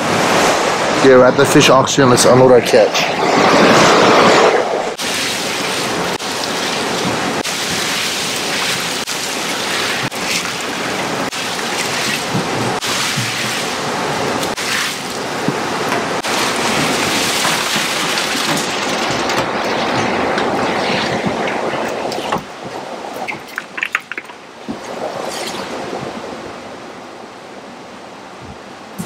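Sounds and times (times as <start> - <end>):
ice slurry sloshing and splashing: 5.0 - 26.3.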